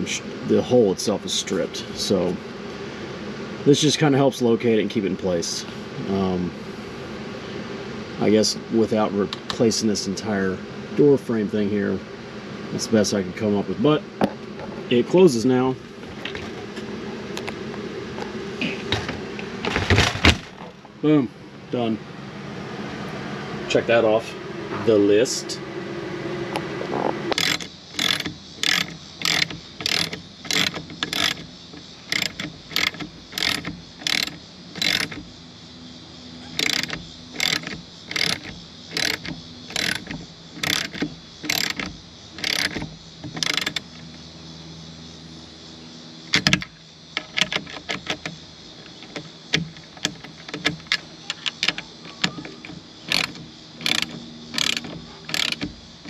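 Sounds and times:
ratchet wrench clicking: 27.3s - 35.3s, 36.6s - 44.0s, 46.4s - 55.8s.

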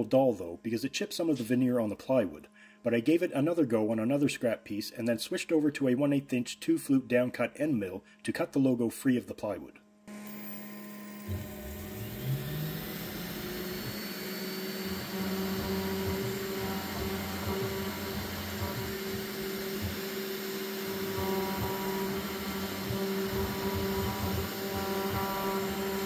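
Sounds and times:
router spindle whine: 10.0s - 26.0s
end mill cutting plywood: 10.1s - 26.0s
stepper motor tones: 10.1s - 26.0s.

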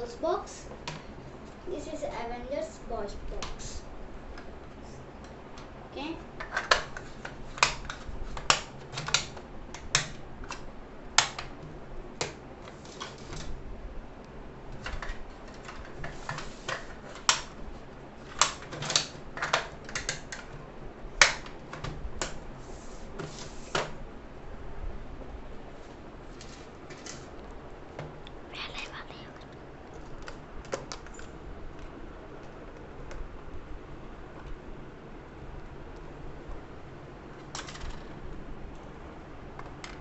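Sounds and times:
plastic box clicks and snaps: 11.2s - 11.5s, 21.2s - 22.4s.

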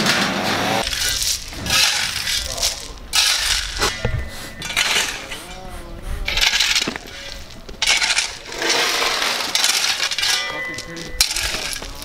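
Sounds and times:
metal tool scraping through gravel: 0.8s - 5.6s, 6.3s - 12.0s.

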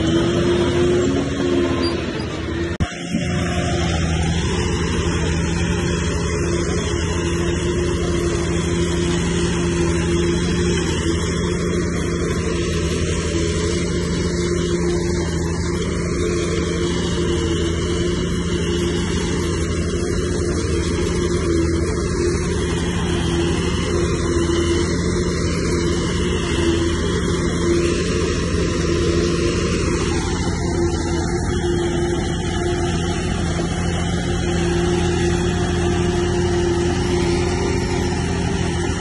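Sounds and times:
bulldozer diesel engine running: 0.0s - 39.0s.

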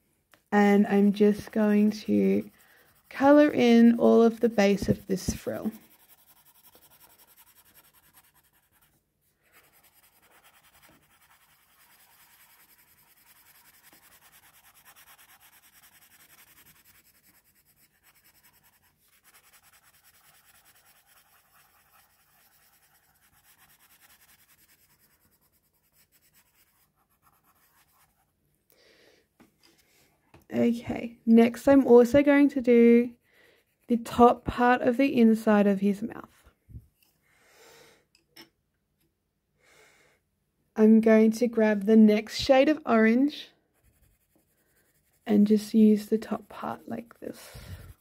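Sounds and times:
pencil scratching on paper: 1.0s - 28.3s, 33.0s - 34.8s, 43.6s - 48.0s.

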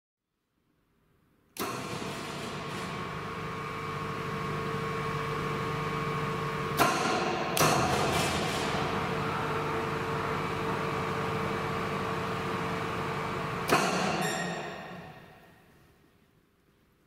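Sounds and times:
bending machine humming: 1.6s - 15.5s
sharp machine clunks: 6.7s - 9.1s, 13.6s - 15.3s.

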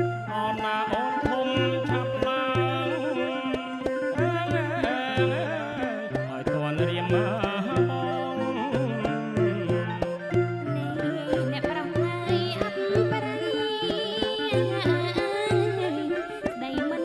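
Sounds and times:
bowed fiddle melody: 0.0s - 17.0s
man singing: 0.3s - 12.0s.

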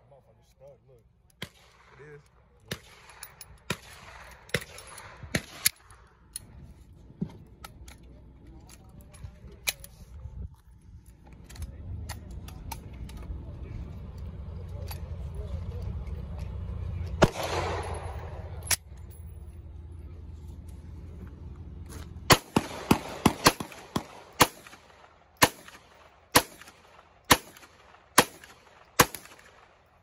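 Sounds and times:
pistol gunshots: 2.7s - 6.0s, 17.2s - 18.6s, 22.3s - 29.9s.

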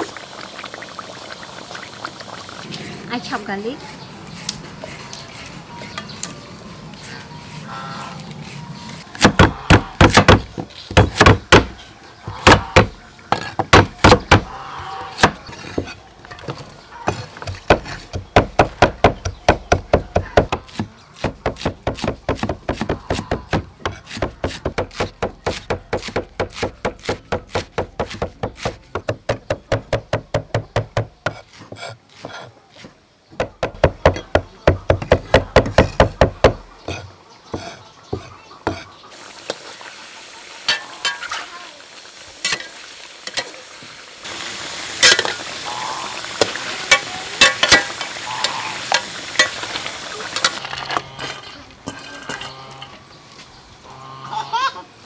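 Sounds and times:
cleaver chopping on wooden block: 9.2s - 11.8s, 12.4s - 14.5s, 17.1s - 32.5s, 33.4s - 38.8s.

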